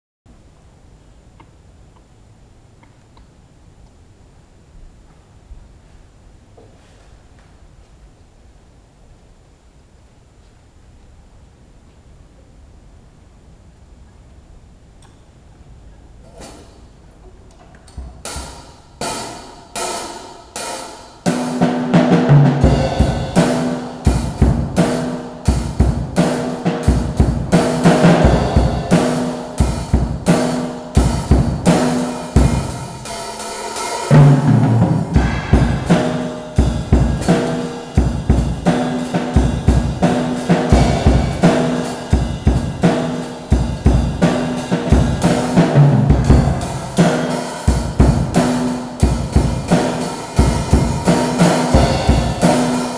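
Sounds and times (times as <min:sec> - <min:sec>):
drum kit playing: 0:17.9 - 0:52.9.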